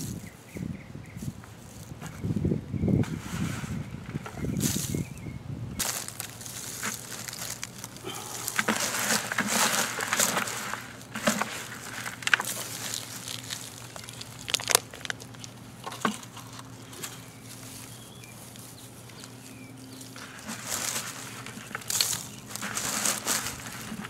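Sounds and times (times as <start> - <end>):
hands rustling soil and straw: 1.2 - 24.0
sharp crackles: 5.8 - 15.9, 17.1 - 24.0.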